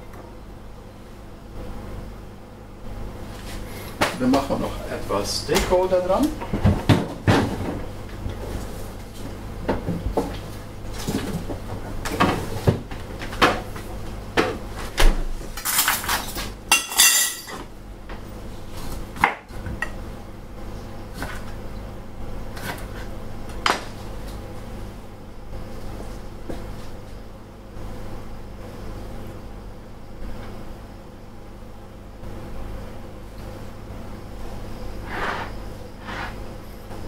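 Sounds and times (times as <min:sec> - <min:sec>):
dishes and utensils clinking: 0:15.6 - 0:17.6
knife on cutting board: 0:35.0 - 0:36.4.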